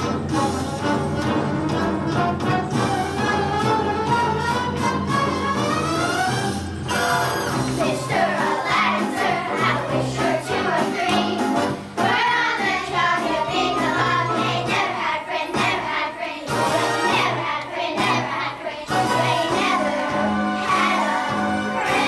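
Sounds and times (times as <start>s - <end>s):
instrumental accompaniment: 0.0s - 22.0s
children singing: 7.6s - 22.0s.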